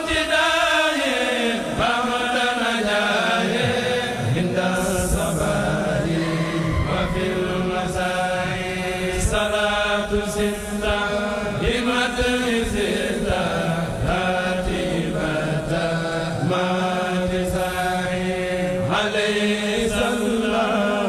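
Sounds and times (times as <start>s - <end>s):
men chanting together: 0.0s - 21.0s.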